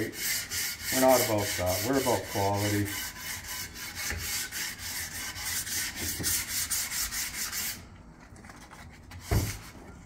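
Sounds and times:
sandpaper rubbing on wood: 0.0 - 7.8.

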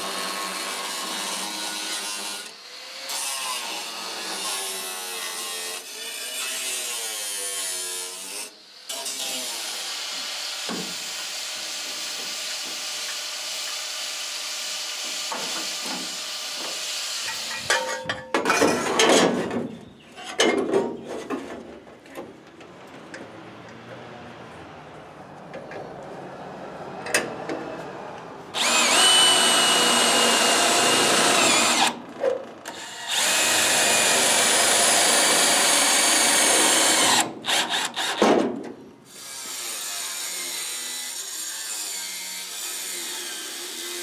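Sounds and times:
angle grinder cutting sheet steel: 0.0 - 17.7, 28.5 - 32.0, 32.7 - 38.2, 39.1 - 44.0.

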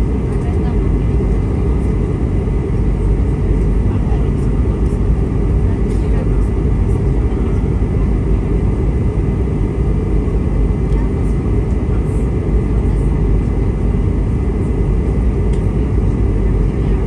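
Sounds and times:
jet engine and airflow rumble: 0.0 - 17.0.

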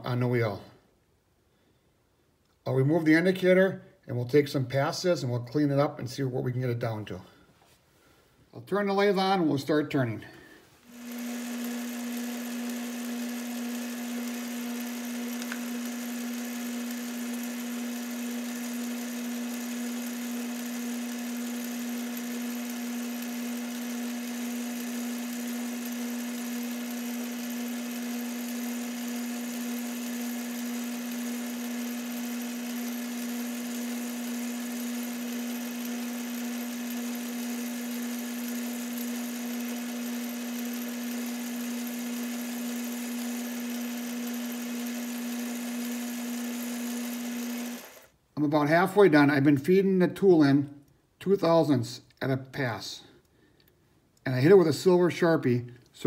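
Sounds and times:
metal lathe motor hum: 10.9 - 48.1.

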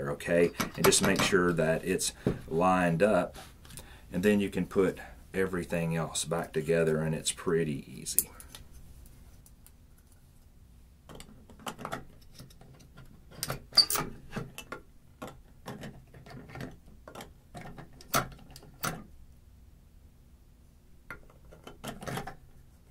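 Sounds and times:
plastic parts clicking and knocking: 11.1 - 19.1, 21.1 - 22.6.

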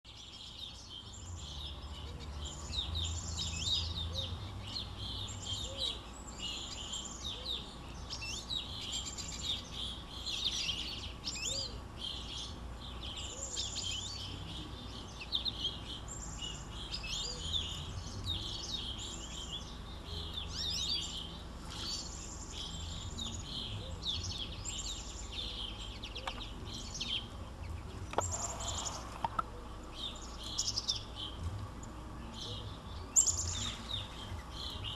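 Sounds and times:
songbirds chirping and singing: 0.0 - 34.9.

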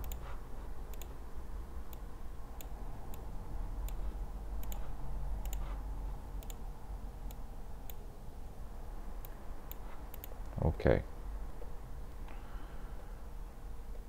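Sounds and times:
keyboard and mouse clicks: 0.0 - 1.2, 3.8 - 5.8, 6.4 - 6.6, 9.2 - 10.5
steady low hum: 0.0 - 14.0.

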